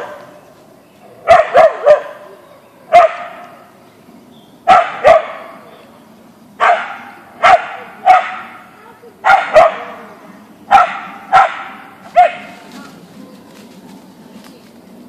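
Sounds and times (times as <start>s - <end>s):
dog barking: 1.2s - 2.3s, 2.9s - 3.4s, 4.7s - 5.6s, 6.6s - 8.6s, 9.2s - 10.0s, 10.7s - 12.6s.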